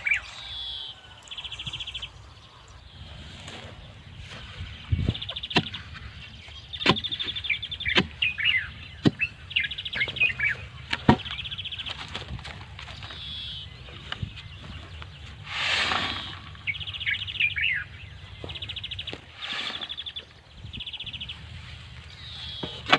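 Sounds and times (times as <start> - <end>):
small birds singing: 0.0 - 22.9
gravel tipped from a shovel: 15.5 - 16.6, 19.2 - 20.1.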